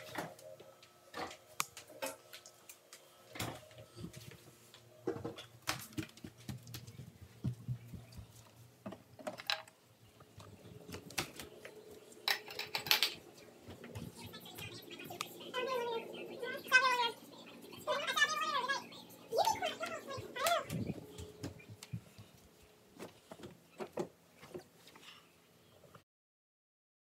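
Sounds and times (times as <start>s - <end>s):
faint steady hum: 0.0s - 26.0s
objects handled and set down: 3.3s - 9.8s, 10.5s - 14.0s.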